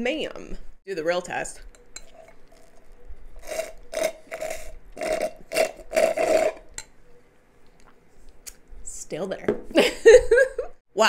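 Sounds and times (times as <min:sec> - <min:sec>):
slurping through a straw: 0:02.0 - 0:06.7.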